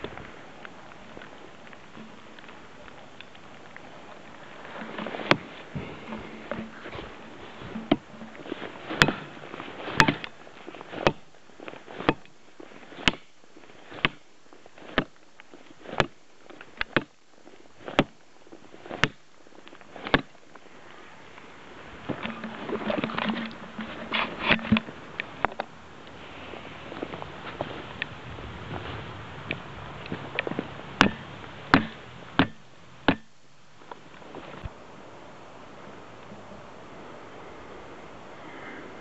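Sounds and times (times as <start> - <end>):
rustling and crunching: 0.0 - 34.8
knife chopping into wood: 9.0 - 9.3, 10.0 - 10.3, 17.9 - 18.2, 20.0 - 20.3, 31.0 - 33.3.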